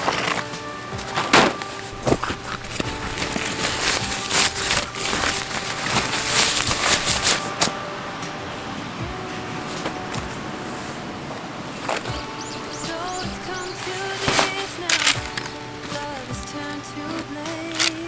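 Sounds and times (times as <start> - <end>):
quiet background music: 0.0 - 18.0
tent fabric rustling: 0.0 - 18.0.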